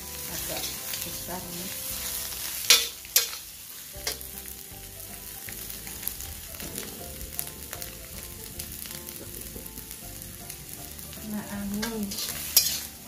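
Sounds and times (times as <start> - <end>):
vegetables sizzling in a wok: 0.0 - 13.0
metal spatula clanking on wok: 0.4 - 1.1, 2.7 - 4.3, 11.7 - 13.0.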